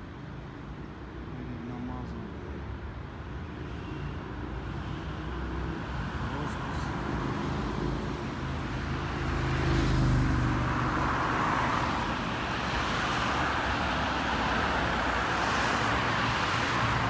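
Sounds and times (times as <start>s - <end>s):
steady traffic noise: 0.0s - 17.0s.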